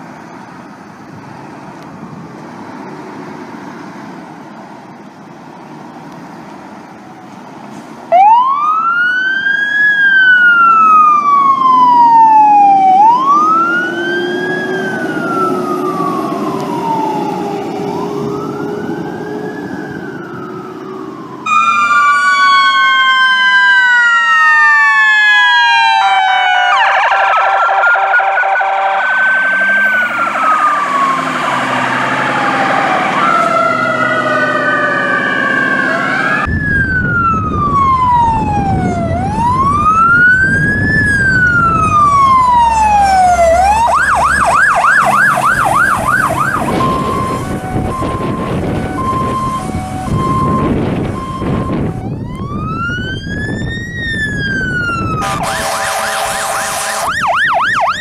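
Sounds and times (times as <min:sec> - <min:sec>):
fire truck sirens wailing: 0:00.0 - 0:58.0
siren fast yelp: 0:08.1 - 0:18.9, 0:21.4 - 0:58.0
rapid pulsed siren tones: 0:08.1 - 0:58.0
heavy engine rumble: 0:29.9 - 0:55.4.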